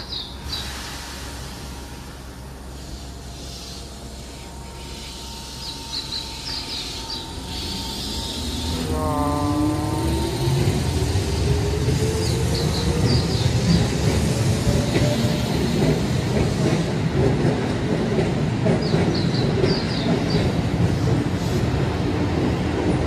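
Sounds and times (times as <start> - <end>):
electric train motor whine: 3.7 - 13.0.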